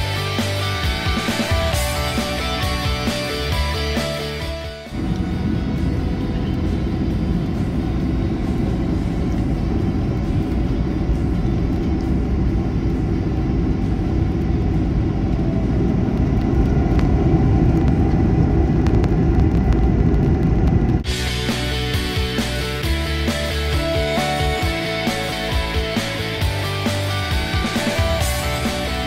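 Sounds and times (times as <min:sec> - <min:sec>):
jet engine cabin rumble: 0:04.4 - 0:23.0.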